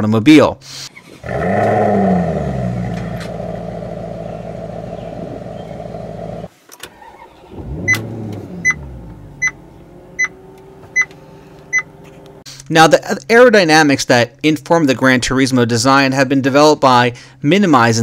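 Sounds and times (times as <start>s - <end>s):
engine revving on start: 1.0s - 11.5s
car engine running and idling: 2.9s - 6.5s, 7.4s - 12.4s
dashboard warning chime beeping: 7.8s - 9.6s, 10.2s - 12.0s.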